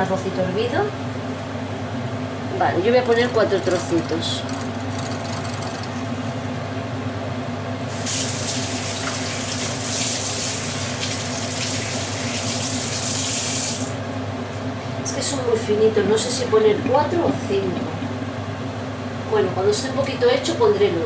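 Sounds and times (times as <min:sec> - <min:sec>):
steady low hum: 0:00.0 - 0:13.0, 0:13.6 - 0:21.0
meat sizzling in a frying pan: 0:07.9 - 0:13.9.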